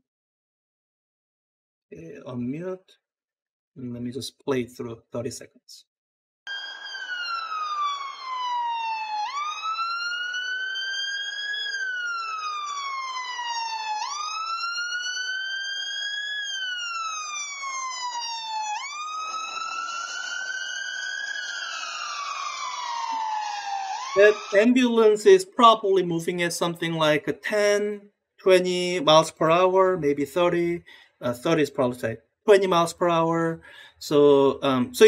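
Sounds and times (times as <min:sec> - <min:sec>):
ambulance siren wailing: 0:06.5 - 0:25.2
road noise: 0:16.1 - 0:25.3.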